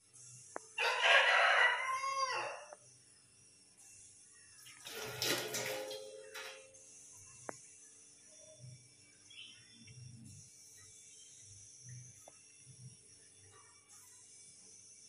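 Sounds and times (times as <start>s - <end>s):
rooster crowing: 0.8s - 2.8s.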